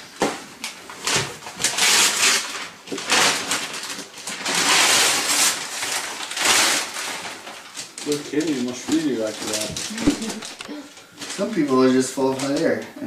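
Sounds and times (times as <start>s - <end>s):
wrapping paper rustling and tearing: 0.6s - 12.8s.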